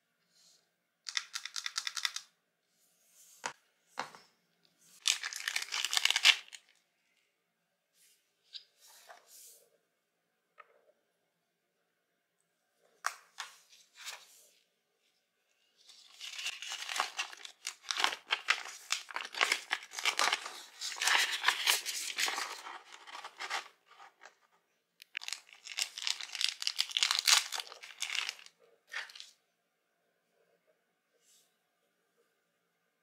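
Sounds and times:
paper crinkling and rustling: 5.0 - 6.8, 15.8 - 24.4, 25.1 - 29.3.

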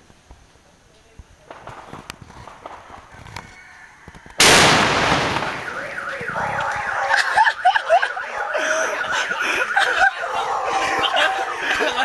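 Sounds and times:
firecracker blast echoing: 1.4 - 3.2, 4.3 - 8.2
car alarm warbling: 5.2 - 12.0.

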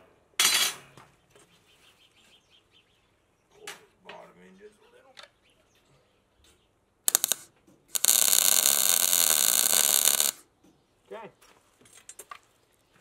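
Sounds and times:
arc welding: 7.1 - 10.4.

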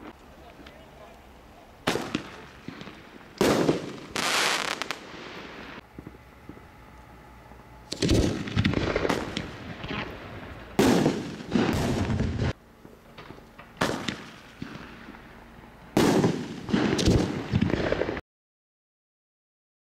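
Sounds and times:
firework shells bursting: 1.8 - 6.7, 7.9 - 15.3.

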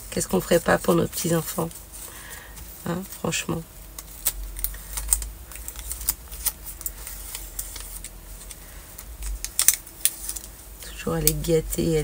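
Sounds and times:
plastic film peeling crackle: 2.6 - 11.5.

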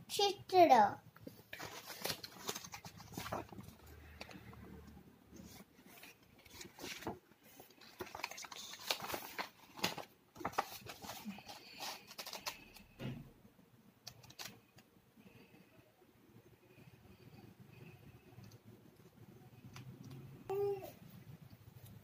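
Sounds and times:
paper rustling: 1.3 - 4.4, 5.4 - 12.9, 14.1 - 14.6.

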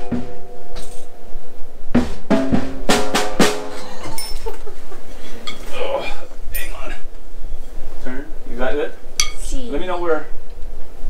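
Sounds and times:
drum kit struck with sticks: 0.0 - 5.0.

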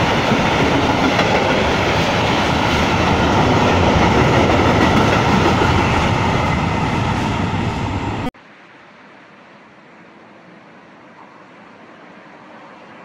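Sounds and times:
train wheels running on rails: 0.0 - 8.3.

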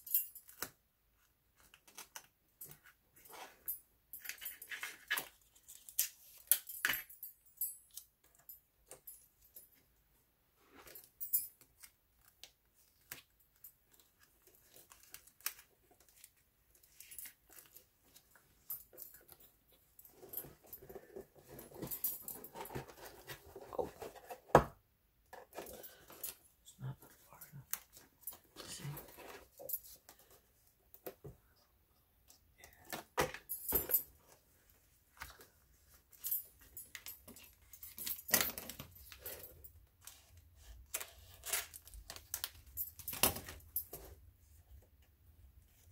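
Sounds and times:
metal bangles clinking: 2.6 - 9.8
cardboard and paper rustling: 20.1 - 24.6.

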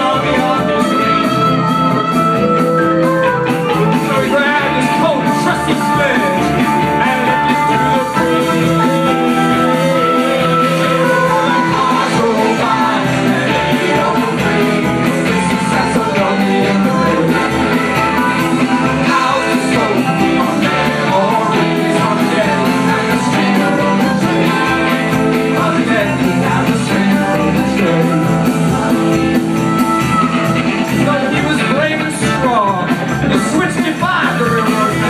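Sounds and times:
live rock and roll band: 0.0 - 35.0
woman singing: 8.2 - 28.9.

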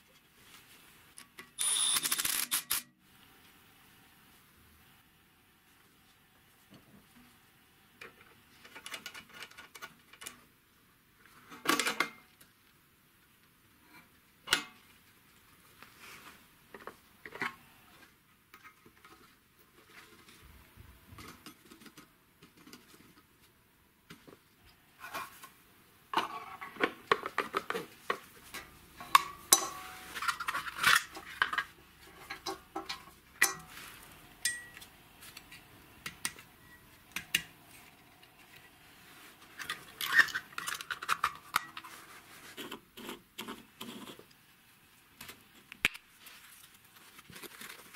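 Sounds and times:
hand tools clicking and clinking: 28.5 - 33.8, 34.4 - 36.4.

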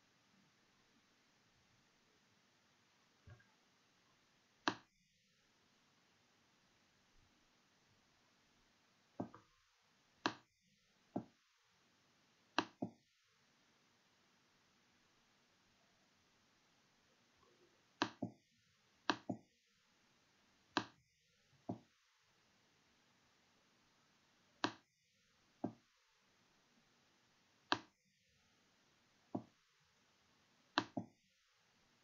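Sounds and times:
faint steady hiss: 0.0 - 32.0
computer mouse clicking: 18.0 - 18.4, 19.0 - 19.4, 24.6 - 24.8, 27.7 - 27.9, 30.8 - 31.1.

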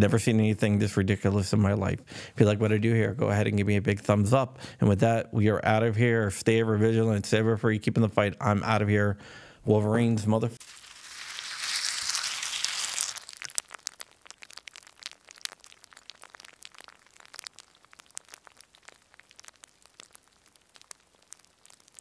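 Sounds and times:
faint crackling clicks: 12.0 - 22.0.

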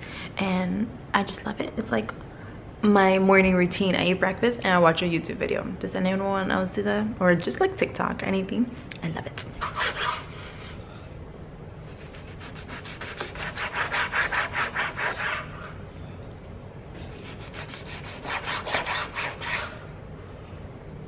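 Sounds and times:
knife sawing on cutting board: 9.6 - 10.3, 12.1 - 15.7, 17.1 - 19.8.

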